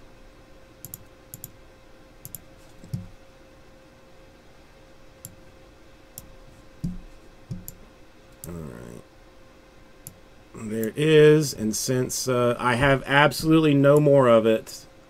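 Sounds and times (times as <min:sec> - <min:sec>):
faint steady hum: 0:00.0 - 0:15.0
mouse and keyboard clicks: 0:02.3 - 0:03.1.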